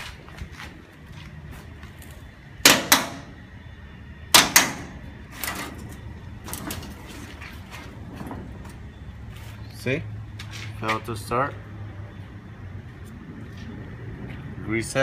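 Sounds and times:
sharp metal latch clicks: 4.3s - 5.7s.

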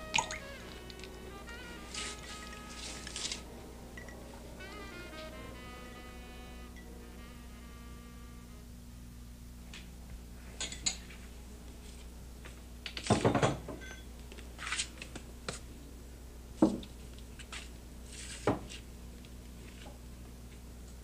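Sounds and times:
low steady hum: 0.0s - 21.0s
dishes clinking on a table: 10.6s - 11.1s, 13.1s - 14.1s.

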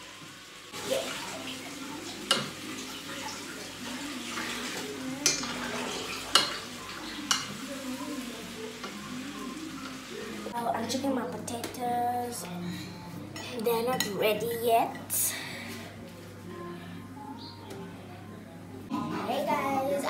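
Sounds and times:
food sizzling in a frying pan: 0.0s - 10.6s.

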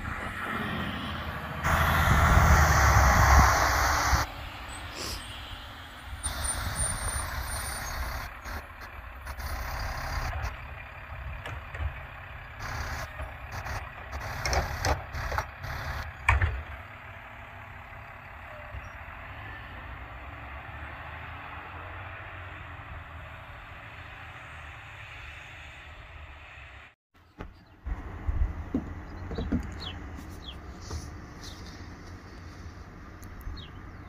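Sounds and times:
garbage truck diesel engine running: 0.0s - 5.3s, 5.9s - 20.2s, 27.9s - 34.0s
knocks and clanks: 11.1s - 12.1s, 16.2s - 16.8s, 27.4s - 30.3s.

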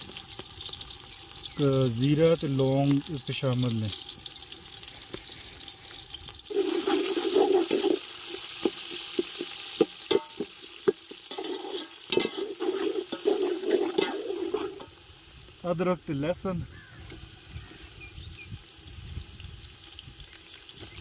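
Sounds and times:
onions sizzling in hot oil: 0.0s - 21.0s
metal spoon scraping pot: 6.5s - 9.5s, 10.1s - 14.9s.

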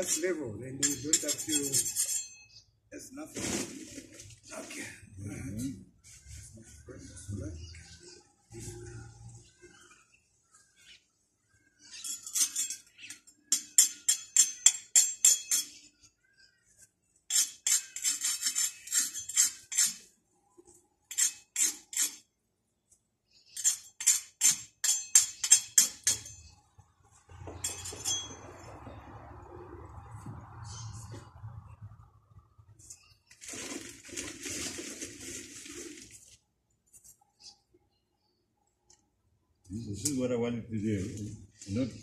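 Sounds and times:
metal tool tapping bricks: 12.3s - 15.8s, 23.6s - 26.5s.

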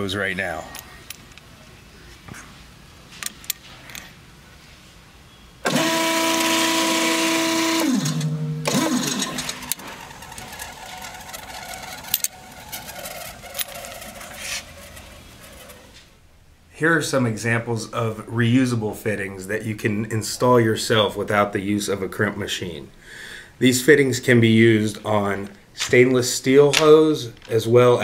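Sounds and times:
crimp machine whine: 5.6s - 16.0s.

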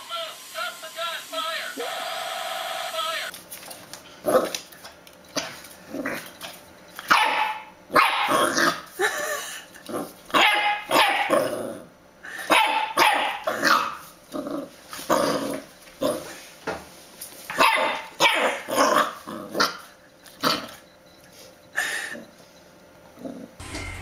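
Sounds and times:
puppy barking: 7.0s - 8.6s, 10.3s - 11.4s, 12.5s - 14.0s, 17.5s - 19.8s.

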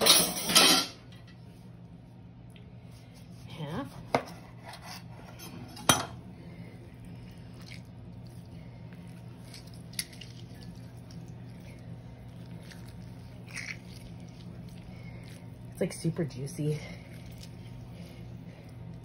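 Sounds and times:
low steady hum: 0.0s - 19.0s
wet squishing of oranges: 6.3s - 19.0s.

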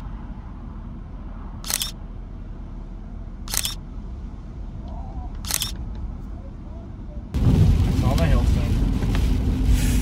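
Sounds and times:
steady low rumble: 0.0s - 10.0s
camera shutter click: 1.7s - 2.0s, 3.5s - 3.8s, 5.4s - 5.8s.

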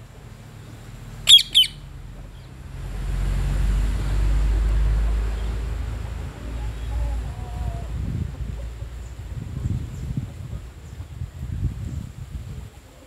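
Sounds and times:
low rumble with faint hiss: 0.0s - 13.0s
parakeet squawks: 1.2s - 1.8s.

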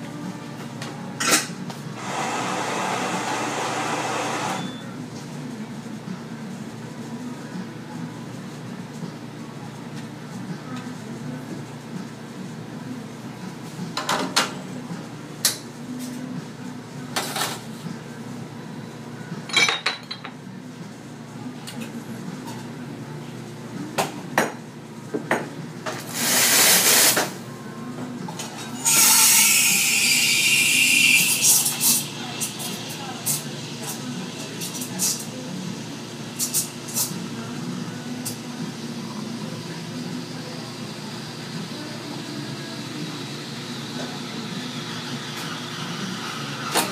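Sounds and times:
murmur of voices: 30.9s - 46.8s.

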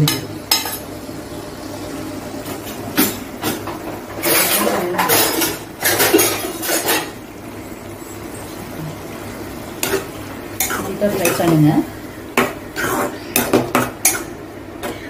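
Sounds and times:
food sizzling in oil: 0.0s - 14.8s
metal spoon clinking on utensils: 10.6s - 11.6s.

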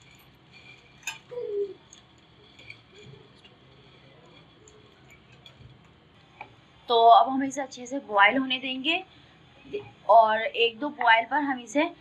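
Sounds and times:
dry noodles scraping on metal platter: 0.0s - 1.3s, 1.9s - 5.8s
light clinks: 0.0s - 6.0s.

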